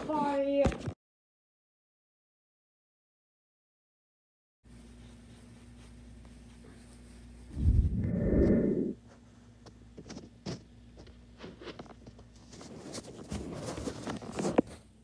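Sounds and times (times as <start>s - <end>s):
cloth rubbing on microphone: 4.8s - 9.0s.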